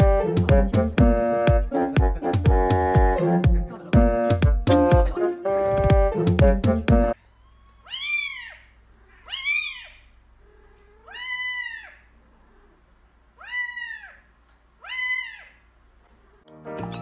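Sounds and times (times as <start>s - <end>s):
kitten meowing: 7.2s - 10.1s, 10.9s - 12.0s, 13.4s - 15.6s, 16.8s - 17.0s.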